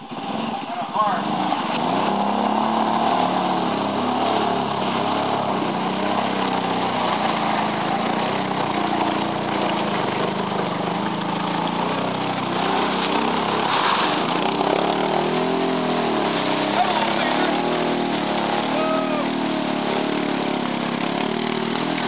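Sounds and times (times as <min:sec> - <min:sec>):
utility vehicle engine under load: 0:00.0 - 0:22.0.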